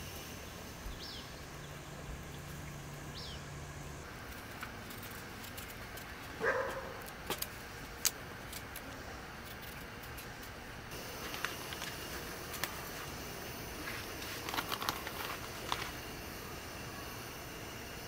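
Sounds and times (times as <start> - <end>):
small bird chirping: 0.4 - 3.6.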